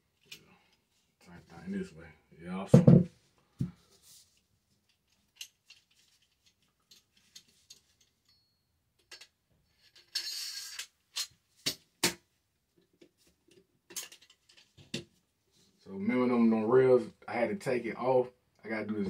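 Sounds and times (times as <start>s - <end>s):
metal parts clicking: 9.0s - 11.3s, 13.9s - 14.7s.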